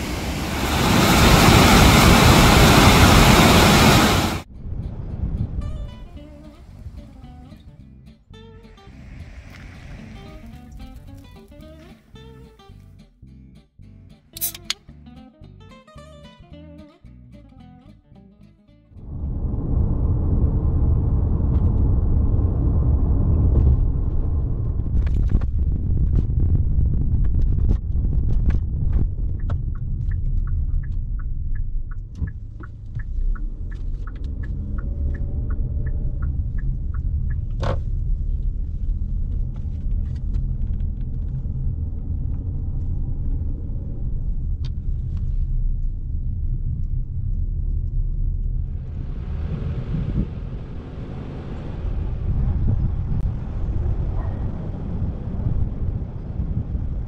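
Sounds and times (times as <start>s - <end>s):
car driving rumble inside cabin: 19.1s - 57.0s
turn signal ticking: 28.7s - 39.5s.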